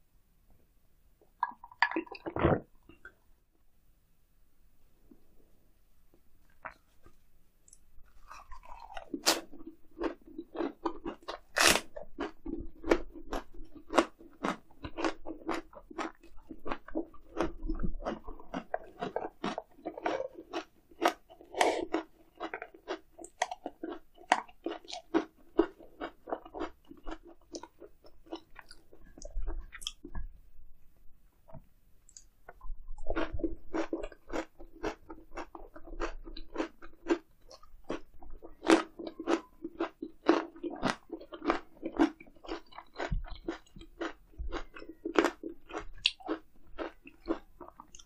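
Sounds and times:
wet crisp chewing crunches: 0:07.7 - 0:30.2, 0:33.1 - 0:48.0.

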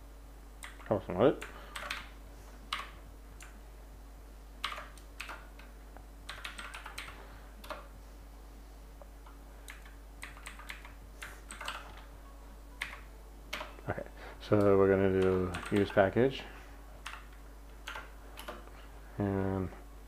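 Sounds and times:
faint low hum: 0:00.0 - 0:20.0
typing on a keyboard: 0:01.7 - 0:02.1, 0:04.6 - 0:05.7, 0:06.3 - 0:07.8, 0:09.7 - 0:12.0, 0:15.2 - 0:15.9.

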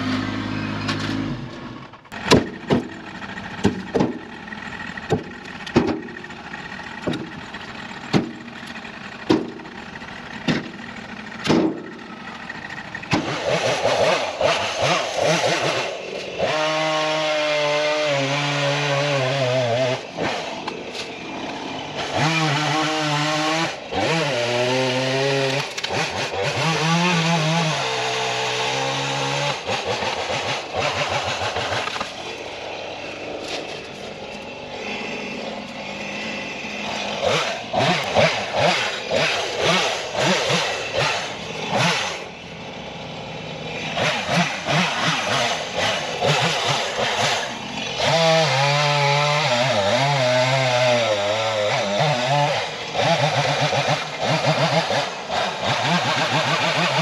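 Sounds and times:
chainsaw cutting wood: 0:00.0 - 0:57.0
sharp knocks: 0:02.2 - 0:03.0, 0:03.6 - 0:04.2, 0:10.4 - 0:10.8, 0:11.4 - 0:11.9.

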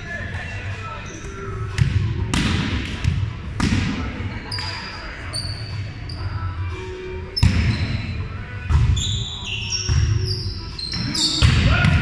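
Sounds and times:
sneakers squeaking on court: 0:07.3 - 0:11.6.

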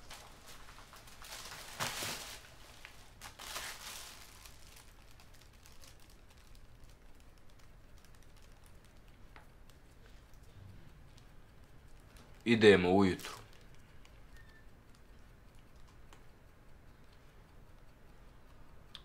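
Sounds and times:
soft rustling: 0:00.0 - 0:15.6
small clicks: 0:13.4 - 0:19.0.

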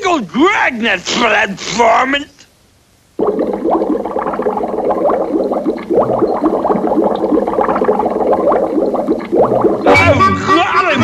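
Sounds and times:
cartoon bubbling blips: 0:03.2 - 0:11.0.

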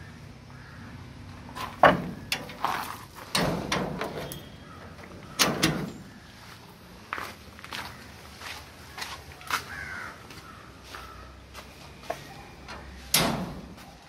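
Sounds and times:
metal cage door rattling: 0:01.8 - 0:02.6, 0:03.2 - 0:06.1, 0:12.7 - 0:13.8.

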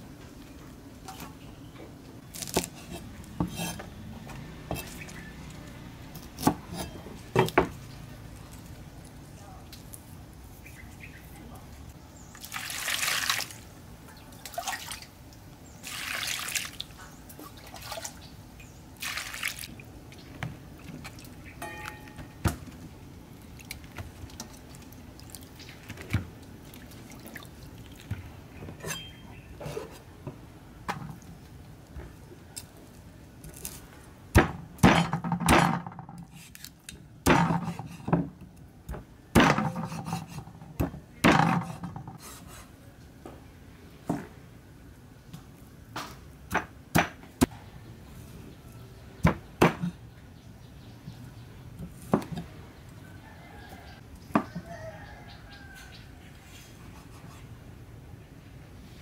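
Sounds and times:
water splashing and dripping: 0:12.4 - 0:18.3, 0:19.0 - 0:21.4, 0:23.4 - 0:28.3.

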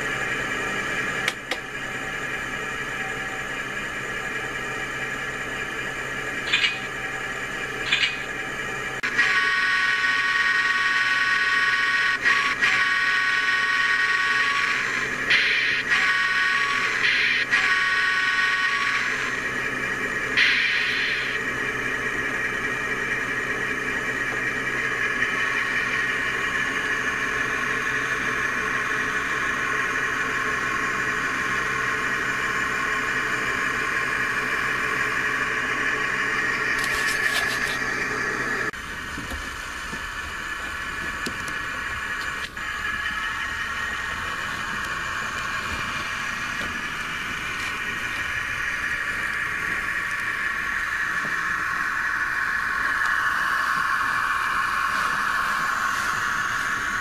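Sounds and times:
simulated diesel engine sound: 0:00.0 - 0:57.0.

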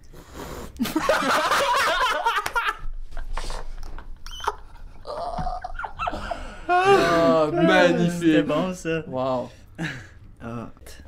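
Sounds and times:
men laughing: 0:00.8 - 0:08.5.

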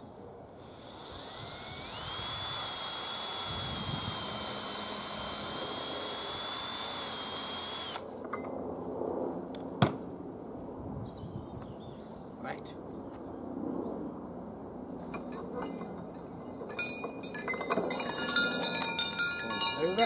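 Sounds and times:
cordless drill boring wood: 0:00.6 - 0:08.0.

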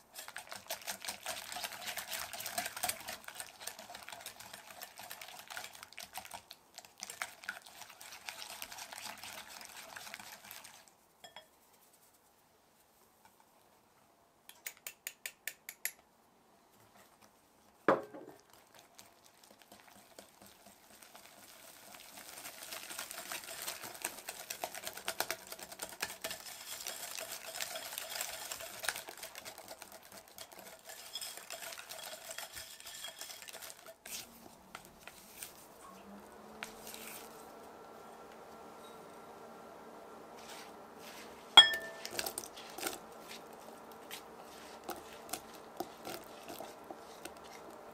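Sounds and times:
utensil scraping and clinking bowl: 0:00.1 - 0:05.2, 0:07.1 - 0:11.5, 0:22.7 - 0:35.6, 0:40.4 - 0:47.9.

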